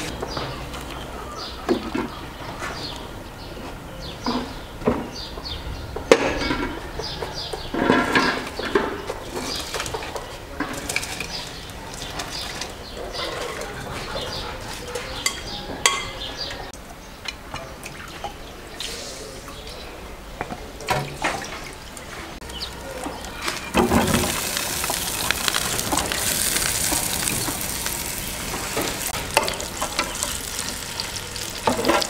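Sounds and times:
water splashing: 0:20.8 - 0:32.0
rice poured into water: 0:23.8 - 0:28.5.

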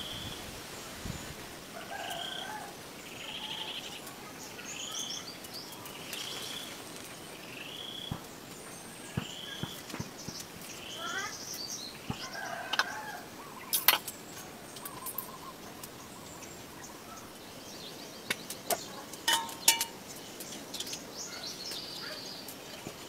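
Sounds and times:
outdoor background noise: 0:00.0 - 0:23.0
bird chirps: 0:13.4 - 0:23.0.

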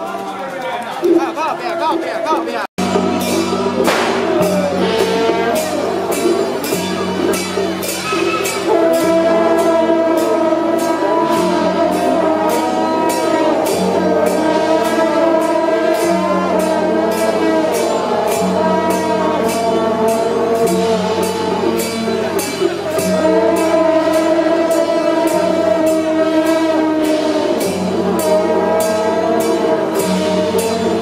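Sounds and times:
steady percussive beat: 0:00.0 - 0:31.0
loud music with singing: 0:01.0 - 0:07.1, 0:07.9 - 0:31.0
bass line: 0:02.8 - 0:26.8.

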